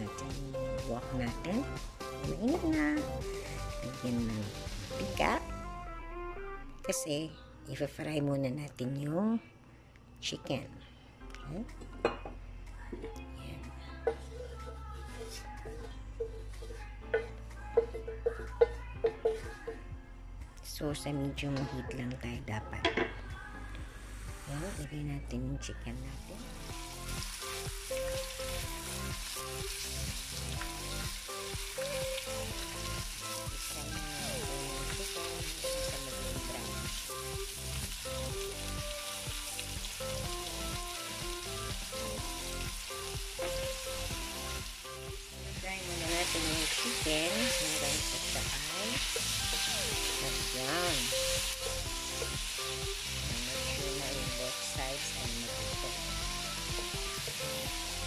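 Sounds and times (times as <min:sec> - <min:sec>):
chicken sizzling in a wok: 0:00.0 - 0:05.4, 0:26.3 - 0:58.0.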